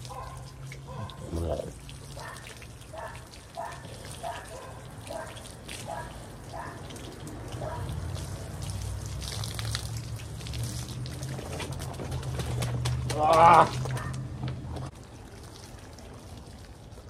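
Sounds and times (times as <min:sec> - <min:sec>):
running water: 0:00.0 - 0:12.1
water dripping and splashing: 0:00.0 - 0:17.0.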